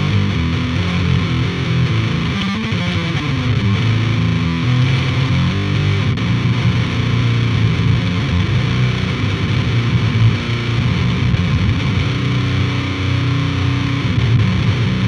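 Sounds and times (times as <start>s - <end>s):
distorted electric guitar riffing: 0.0s - 15.0s.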